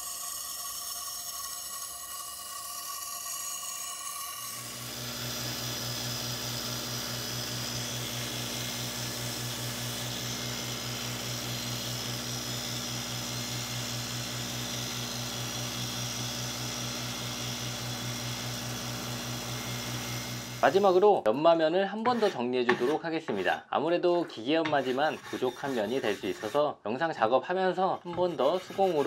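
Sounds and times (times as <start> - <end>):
belt grinder motor hum: 0.0 - 21.2, 22.1 - 22.9
sanding belt hiss: 28.1 - 29.0.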